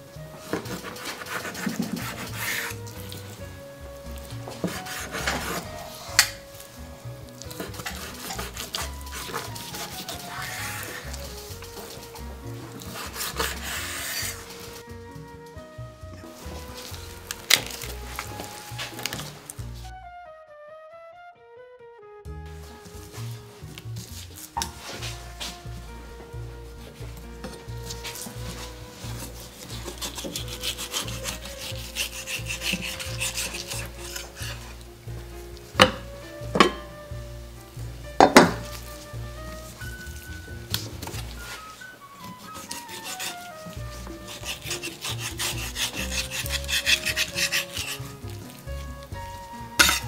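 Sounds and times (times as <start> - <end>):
soft melodic background music: 0.0 - 50.0
utensil scraping food: 0.5 - 3.2, 4.4 - 6.4, 7.4 - 14.8, 27.4 - 34.9, 42.3 - 48.6, 49.8 - 50.0
soft music with pulsing beat: 21.4 - 32.5.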